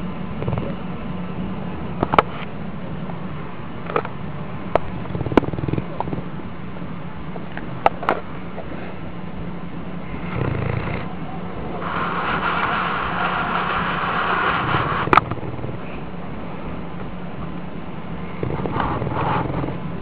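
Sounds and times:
dog snoring: 0:00.4 - 0:00.8, 0:05.0 - 0:06.3, 0:10.0 - 0:11.1, 0:11.8 - 0:16.0, 0:18.3 - 0:19.9.

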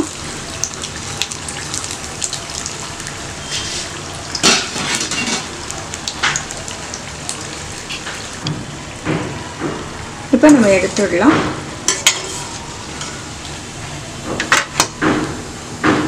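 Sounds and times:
fritters sizzling in hot oil: 0:00.0 - 0:09.0, 0:11.7 - 0:15.7
oil crackling and popping: 0:00.0 - 0:09.7.

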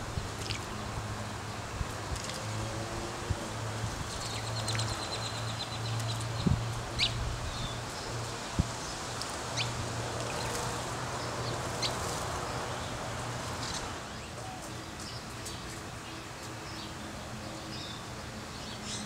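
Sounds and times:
sparrows chirping: 0:03.9 - 0:19.0.

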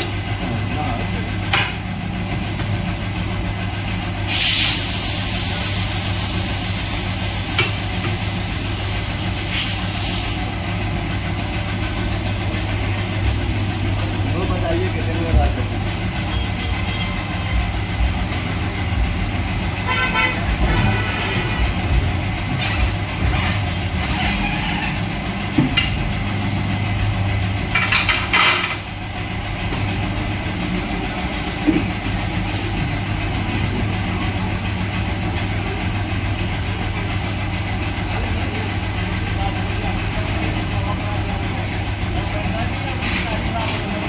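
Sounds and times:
loud air blast: 0:04.2 - 0:10.5
low machine hum: 0:10.5 - 0:44.0.

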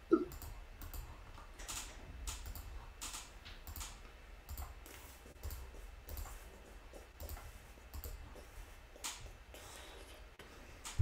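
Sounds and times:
low steady hum: 0:00.0 - 0:11.0
computer keyboard typing: 0:00.3 - 0:06.4.

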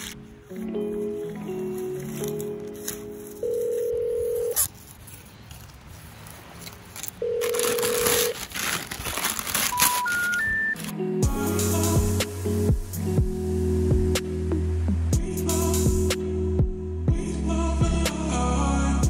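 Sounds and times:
tape and paper crumpled and torn: 0:00.0 - 0:00.2, 0:01.2 - 0:11.0.

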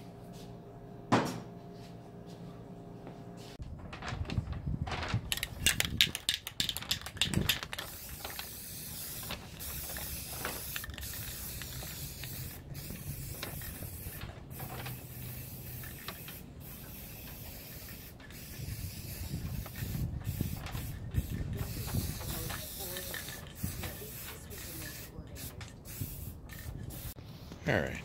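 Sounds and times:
spray can mixing ball rattling: 0:05.3 - 0:27.2
spray paint hissing: 0:05.3 - 0:27.5.

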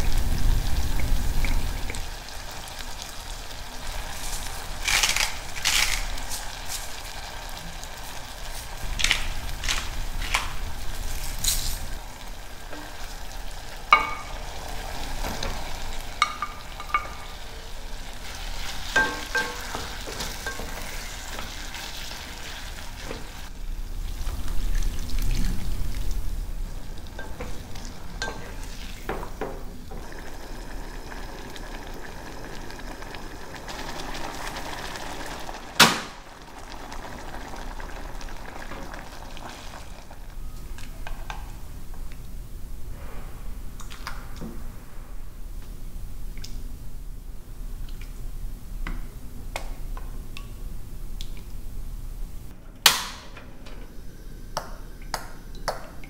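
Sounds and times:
food sizzling in a pan: 0:00.0 - 0:41.8.

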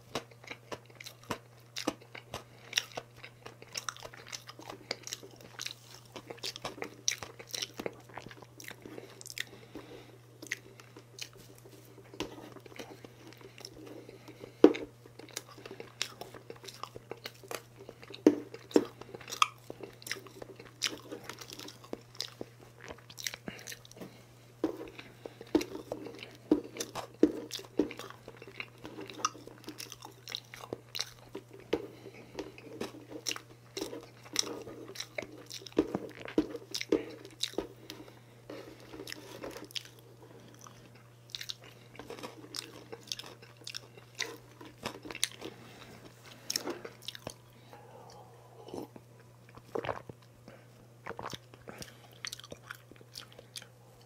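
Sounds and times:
chewing cake: 0:00.0 - 0:54.0.

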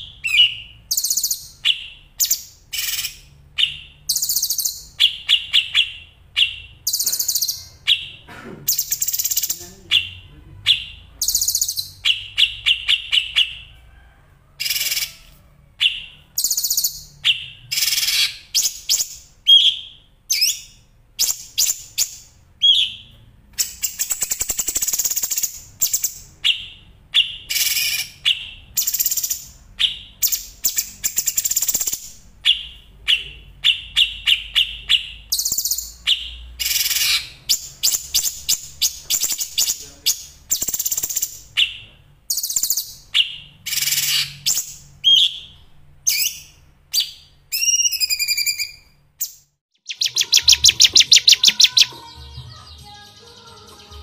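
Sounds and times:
songbirds trilling: 0:49.8 - 0:54.0.

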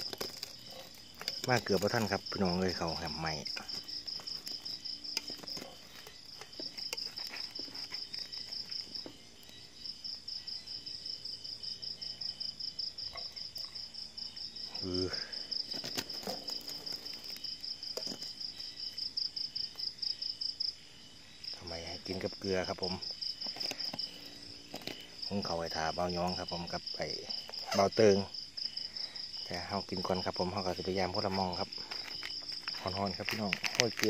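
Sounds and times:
night insects trilling: 0:00.0 - 0:34.0.

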